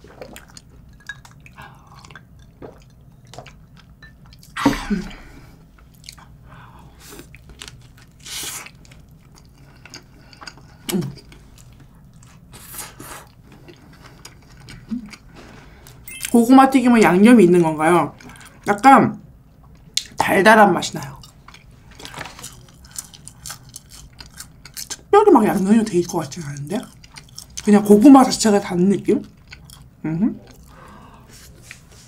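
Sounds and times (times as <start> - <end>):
person chewing food: 0.0 - 4.6, 5.2 - 16.2, 21.1 - 25.1, 26.8 - 27.7, 29.2 - 32.0.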